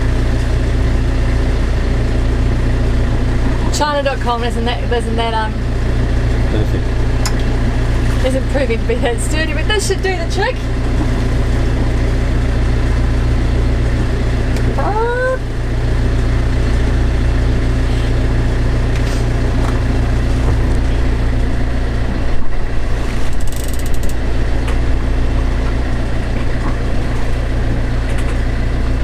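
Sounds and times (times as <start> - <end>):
boat engine droning: 0.0 - 29.0
tripod mount clicks and rattles: 23.4 - 24.2.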